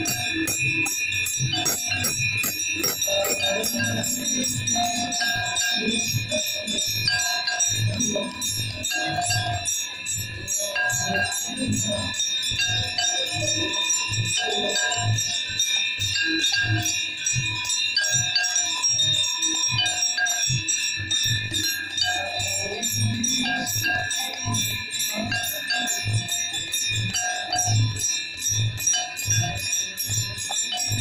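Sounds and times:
brass hand bells ringing: 0.0s - 9.6s.

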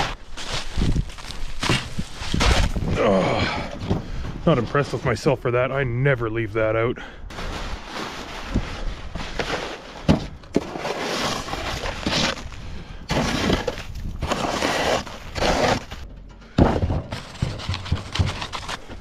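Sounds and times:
snow and ice crunching: 0.0s - 3.6s, 7.3s - 16.1s.

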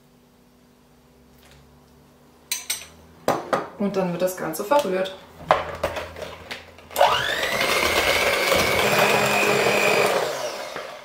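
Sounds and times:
hand mixer whining: 6.9s - 11.0s.

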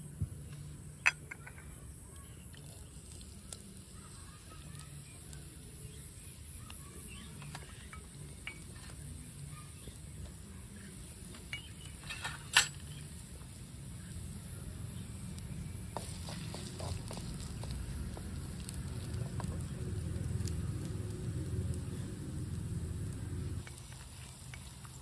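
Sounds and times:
twig fire crackling: 0.3s - 25.0s.

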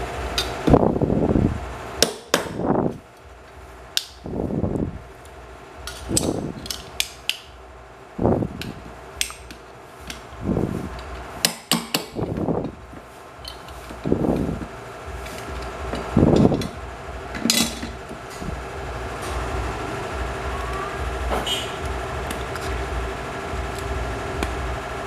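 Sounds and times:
metal parts clicking and knocking: 5.8s - 7.5s, 13.4s - 18.2s.

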